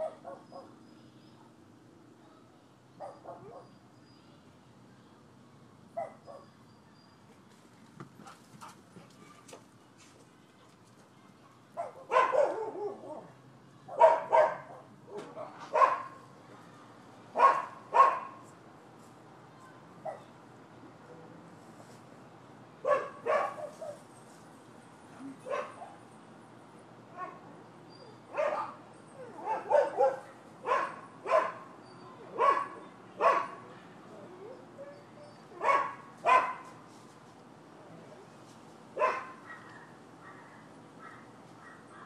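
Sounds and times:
dogs barking: 0.0 - 0.8, 3.0 - 3.7, 6.0 - 6.5, 11.8 - 13.3, 13.9 - 16.2, 17.4 - 18.4, 22.8 - 24.0, 25.4 - 26.0, 28.3 - 33.7, 35.5 - 36.6, 39.0 - 42.0.

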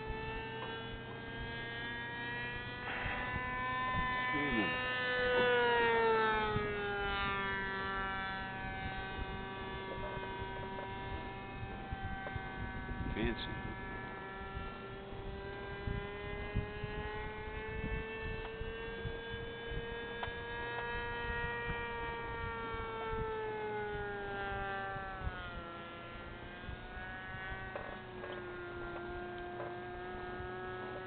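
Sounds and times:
model plane engine whining: 0.0 - 31.0.

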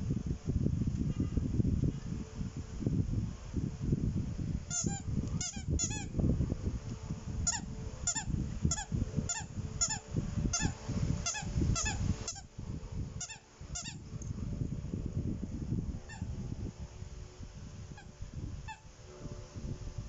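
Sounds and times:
squeaky dog toy squeaking: 4.7 - 6.1, 7.5 - 12.5, 13.2 - 14.0.

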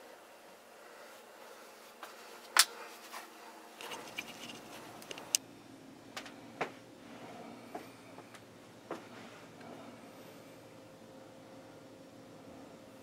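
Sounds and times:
sharp clicks and light knocks: 3.8 - 5.4.

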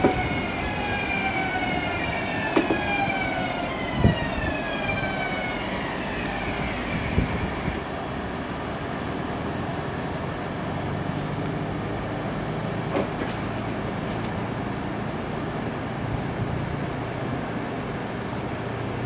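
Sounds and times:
sharp knocks from train wheels: 0.0 - 0.4, 2.5 - 3.1, 12.9 - 13.5
train motor whine: 0.0 - 7.9
train rolling rumble: 0.0 - 19.0.

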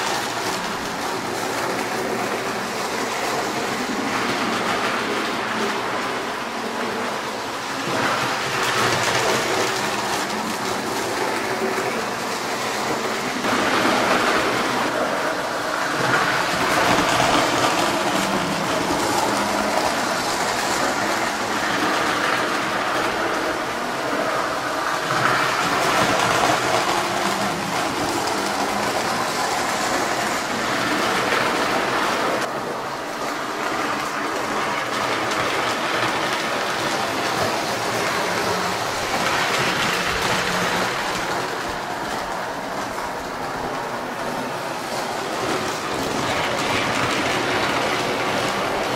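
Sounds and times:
toy train wheels rattling on track: 6.8 - 32.5, 33.2 - 48.9.

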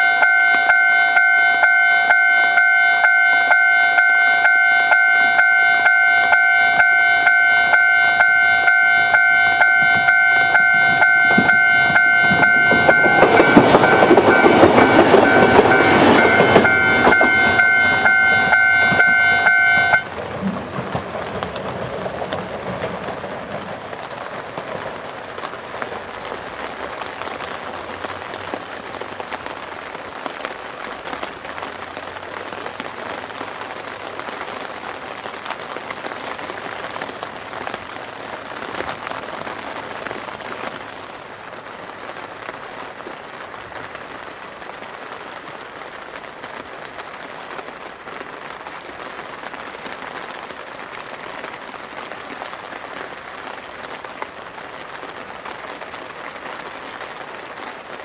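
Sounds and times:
ringing warning tone: 0.0 - 20.1
electric train passing on rails: 0.0 - 29.4, 31.0 - 58.0
heavy rain hissing: 1.2 - 58.0.

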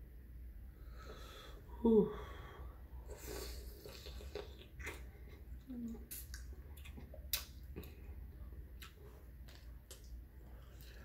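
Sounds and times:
lip smacks and clicks: 6.0 - 8.0.

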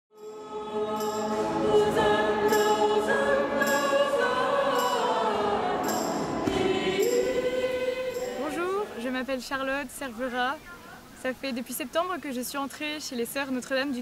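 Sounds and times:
choir singing sustained chords: 0.1 - 9.3.

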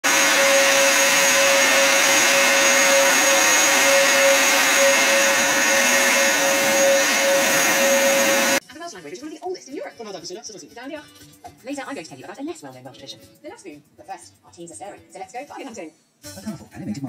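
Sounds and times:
vacuum cleaner running: 0.0 - 8.6.

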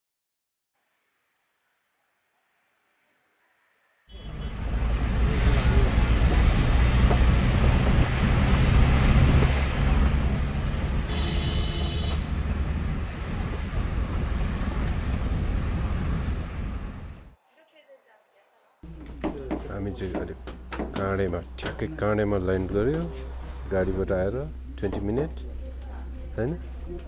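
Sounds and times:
vehicle engine and road rumble: 4.1 - 17.3, 18.8 - 27.0.

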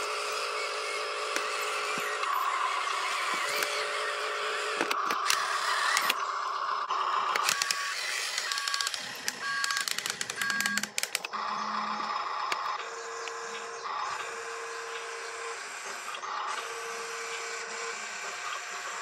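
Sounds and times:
toy truck motor whining: 0.0 - 19.0
sharp clicks: 1.2 - 4.1, 4.7 - 6.3, 7.2 - 15.1.

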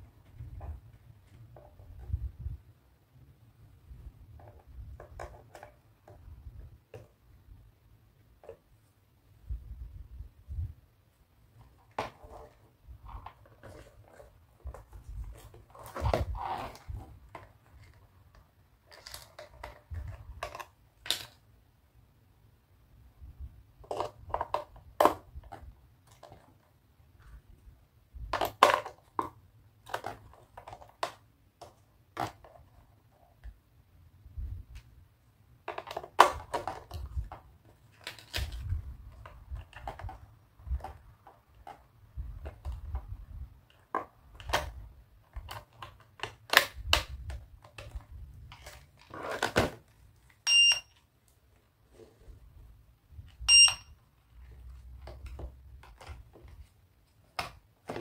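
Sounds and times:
plastic clicks and rattles of batteries: 4.3 - 7.2, 11.6 - 21.5, 23.8 - 26.7, 28.2 - 33.6, 35.6 - 51.4, 54.4 - 58.0
short electronic beeps: 50.5 - 50.9, 53.5 - 53.9.

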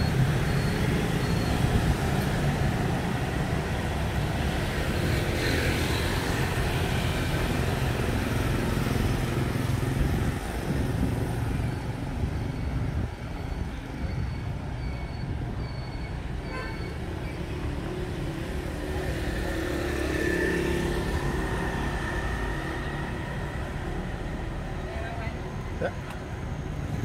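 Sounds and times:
street traffic rumble: 0.0 - 27.0
motorbike passing close: 17.4 - 24.8.

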